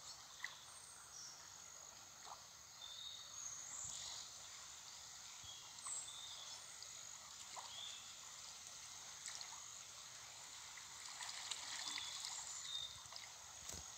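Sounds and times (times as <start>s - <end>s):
water trickling and splashing: 3.9s - 13.9s
small splashes: 9.2s - 13.9s.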